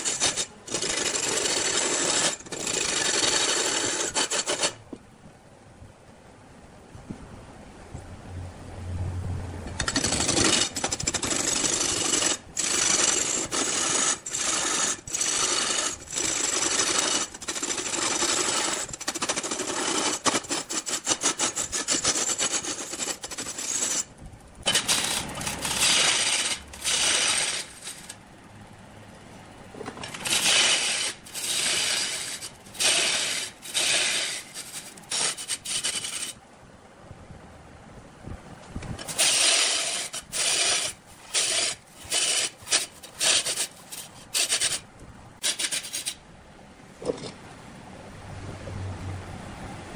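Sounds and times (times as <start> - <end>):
cutting tool scraping spinning log: 0.0 - 4.8, 9.7 - 28.2, 29.8 - 36.4, 39.0 - 46.2.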